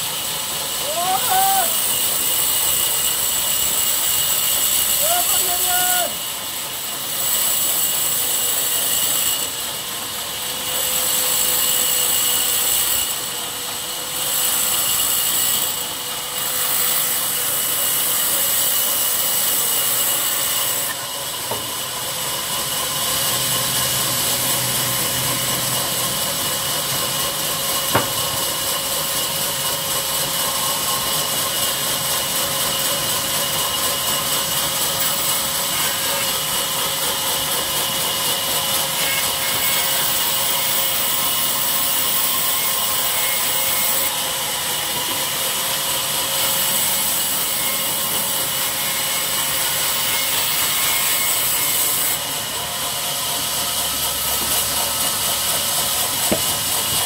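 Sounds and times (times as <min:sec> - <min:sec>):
sawmill saw cutting logs: 0:00.0 - 0:57.0
sharp knock: 0:27.9 - 0:28.3, 0:56.3 - 0:56.6.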